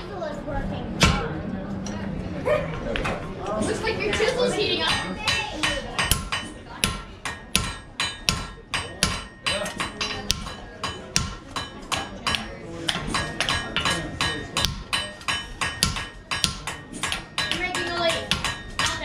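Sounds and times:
hammer striking chisel on hot steel: 0:01.0 - 0:01.2, 0:04.9 - 0:19.0.

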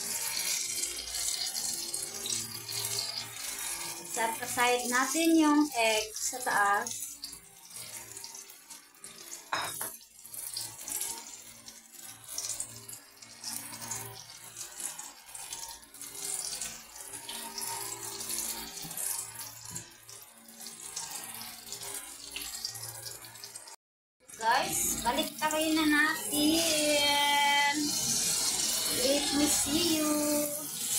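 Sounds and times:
food sizzling in oil: 0:00.0 - 0:30.9.

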